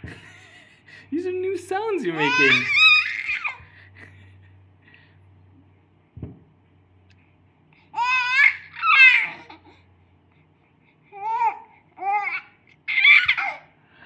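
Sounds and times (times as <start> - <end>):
infant cooing and babbling: 2.2 - 3.6, 8.0 - 9.8, 11.1 - 13.6.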